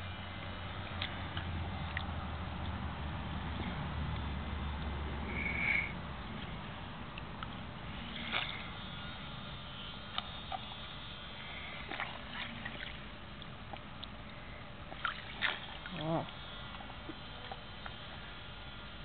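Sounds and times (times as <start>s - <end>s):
water splashing in paddling pool: 6.1s - 18.5s.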